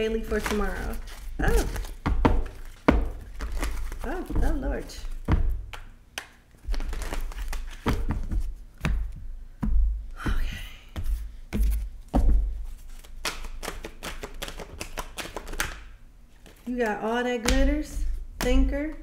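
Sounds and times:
cards being shuffled: 0:00.0 - 0:09.1, 0:12.6 - 0:18.2.

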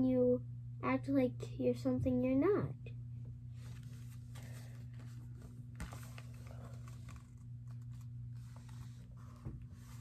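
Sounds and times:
steady low hum: 0:00.0 - 0:10.0
book rustling and ticking: 0:03.6 - 0:10.0.

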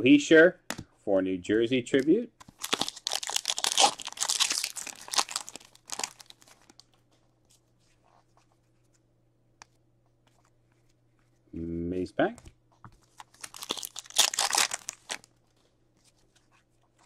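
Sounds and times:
trading cards rustling: 0:02.4 - 0:09.0, 0:12.9 - 0:17.0.

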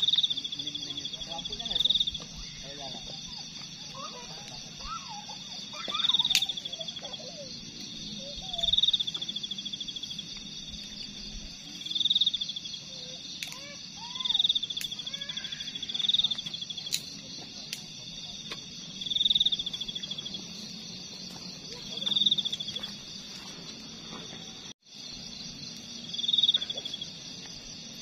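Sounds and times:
faint chirps: 0:00.0 - 0:17.8
insect chorus: 0:00.0 - 0:28.0
insect pulsed trills: 0:00.0 - 0:28.0.

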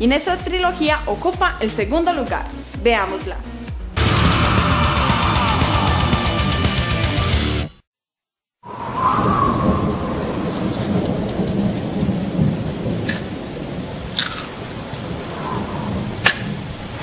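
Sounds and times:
rain hissing: 0:08.7 - 0:17.0
rolling thunder rumble: 0:08.7 - 0:17.0.

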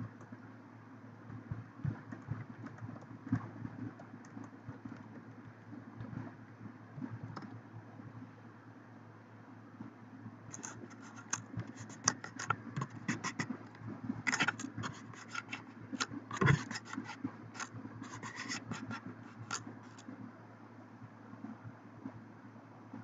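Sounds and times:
faint steady hum: 0:00.0 - 0:23.0
typing on computer keyboard: 0:02.0 - 0:05.2, 0:10.5 - 0:13.5.

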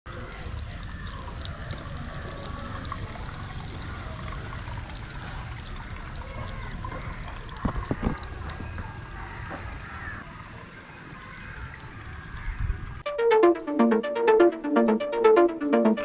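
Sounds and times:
water spraying from leaking pipe: 0:00.2 - 0:12.4.

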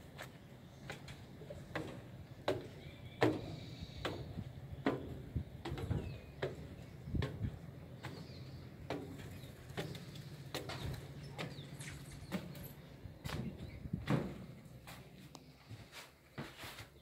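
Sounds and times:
footsteps on metal stairs: 0:00.0 - 0:17.0
faint bird chirps: 0:02.7 - 0:04.4.

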